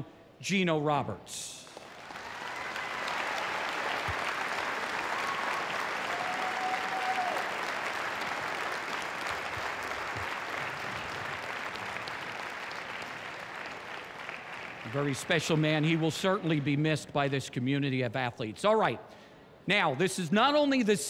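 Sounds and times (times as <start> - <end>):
crowd applauding: 1.7 - 17.0.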